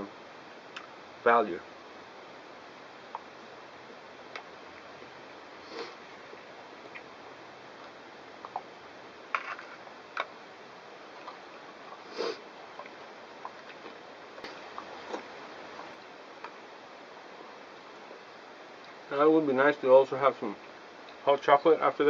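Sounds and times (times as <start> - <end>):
man sniffing: 5.6 - 6.0, 12.0 - 12.4.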